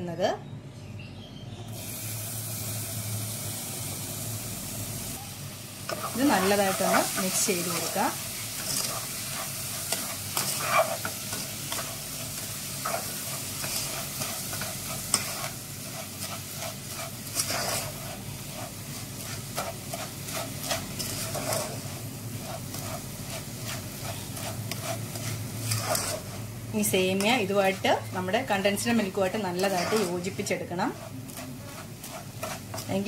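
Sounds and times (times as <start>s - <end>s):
sizzling in a pan: 1.7s - 33.0s
spoon scraping a pan: 5.9s - 33.0s.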